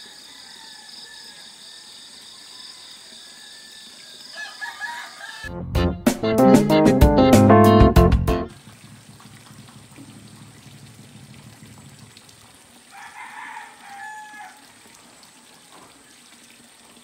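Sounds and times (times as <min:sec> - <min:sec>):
rooster crowing: 0:00.0 - 0:05.5, 0:12.9 - 0:14.8.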